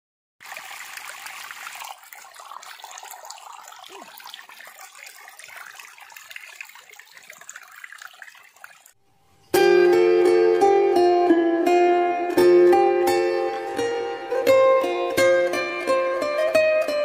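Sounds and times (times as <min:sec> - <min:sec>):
stream trickling over rocks: 0:00.4 - 0:09.0.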